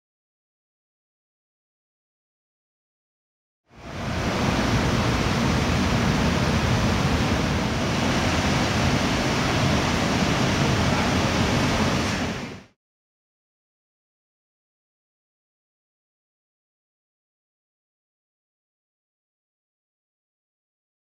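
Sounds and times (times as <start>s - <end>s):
steady rushing noise: 3.7s - 12.8s.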